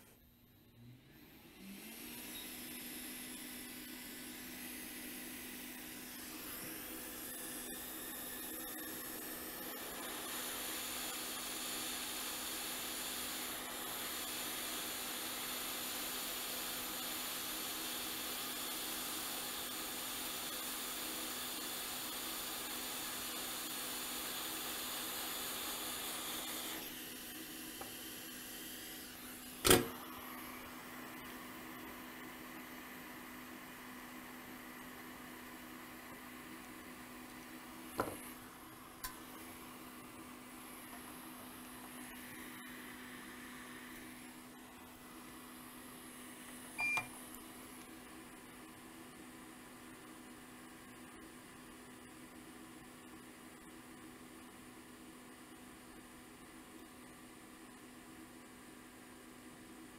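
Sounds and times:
hot air station blowing with low hum: 0:01.9 - 0:48.9.

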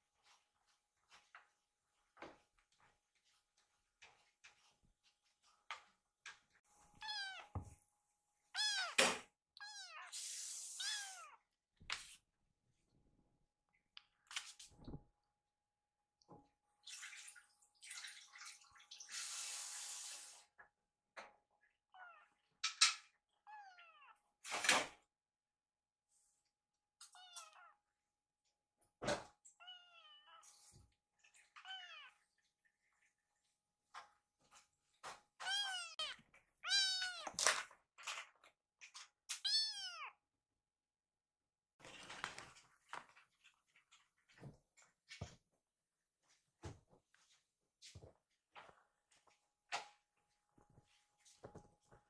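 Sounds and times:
kitten meowing: 0:07.0 - 0:07.6, 0:08.6 - 0:11.4, 0:27.1 - 0:27.8, 0:35.4 - 0:37.4, 0:39.3 - 0:40.1
kitten mewing: 0:08.6 - 0:10.2, 0:10.8 - 0:11.4.

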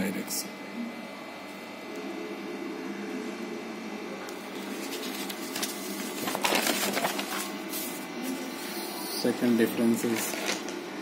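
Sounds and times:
paper page turning: 0:04.5 - 0:08.5, 0:10.0 - 0:10.8.

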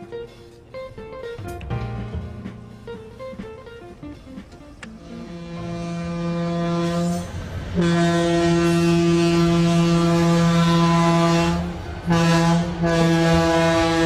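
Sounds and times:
locomotive air horn blasts: 0:04.9 - 0:14.0.

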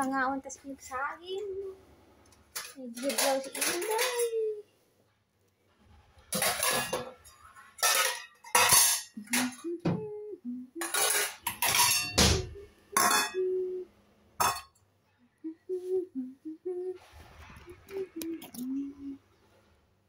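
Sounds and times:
dishes and utensils clattering: 0:02.5 - 0:04.6, 0:06.3 - 0:10.1, 0:10.8 - 0:13.6, 0:14.4 - 0:14.8.

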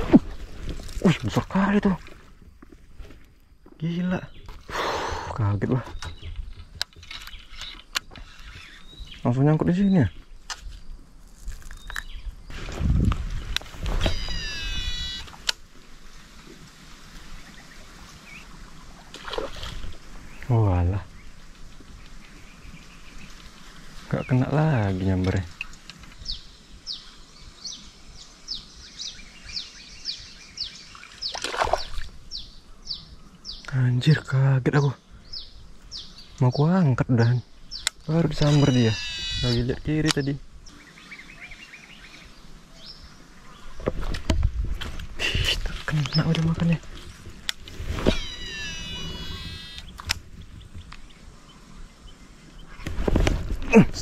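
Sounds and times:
bird chirping: 0:05.4 - 0:10.4, 0:14.0 - 0:15.3, 0:25.6 - 0:43.8, 0:48.0 - 0:52.8
fish splashing: 0:31.3 - 0:32.1
fishing reel whirring: 0:48.2 - 0:50.0.

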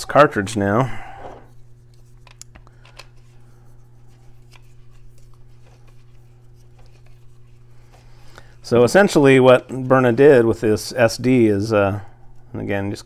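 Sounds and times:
steady low hum: 0:00.0 - 0:13.0
clicks and scraping of handling: 0:01.2 - 0:03.4, 0:04.0 - 0:08.4.

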